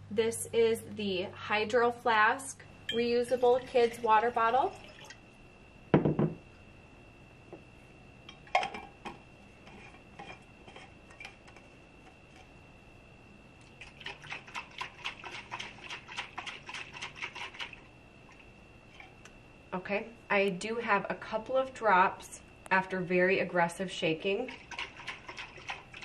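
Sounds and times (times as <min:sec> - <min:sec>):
pitcher thumping on countertop: 0:05.9 - 0:06.4.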